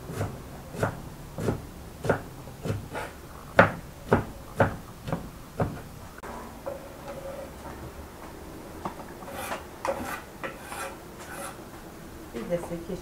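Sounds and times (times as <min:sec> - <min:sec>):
knife chopping on wooden board: 0:00.1 - 0:05.8.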